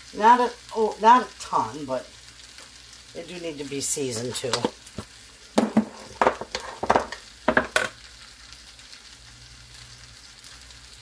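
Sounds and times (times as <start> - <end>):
potatoes sizzling in a skillet: 0.0 - 11.0
knocks and clatters of handling: 4.5 - 8.0.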